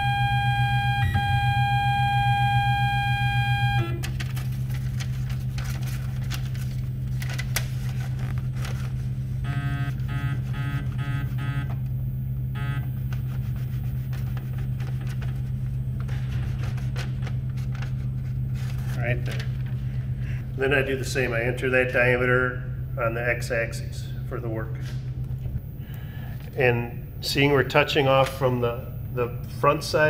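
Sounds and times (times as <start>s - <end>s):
lathe electrical hum: 0.0s - 30.0s.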